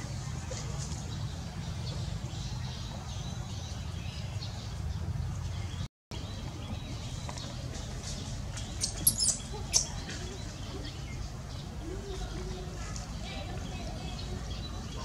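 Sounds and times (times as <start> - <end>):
faint bird chirps: 8.6 - 11.2
sharp high squeaks: 8.8 - 9.9.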